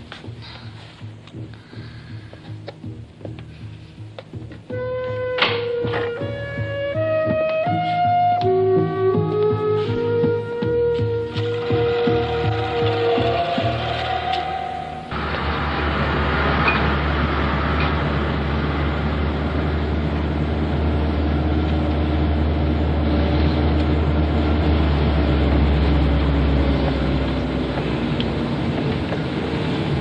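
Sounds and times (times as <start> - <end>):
road noise: 0.0 - 30.0
car engine running: 9.8 - 30.0.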